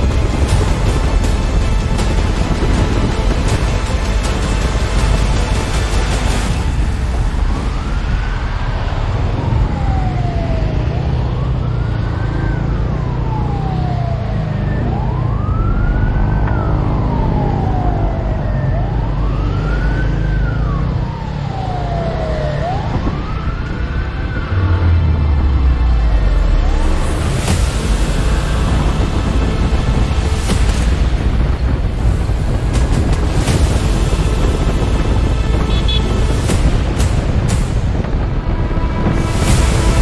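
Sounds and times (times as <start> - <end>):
siren wailing: 0.0 - 4.0, 5.8 - 40.0
steady low rumble: 0.0 - 11.9, 22.7 - 40.0.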